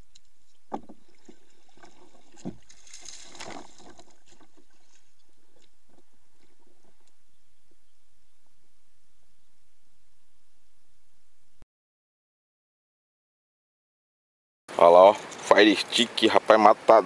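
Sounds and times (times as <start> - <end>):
paddle dipping through water: 0.0 - 8.8.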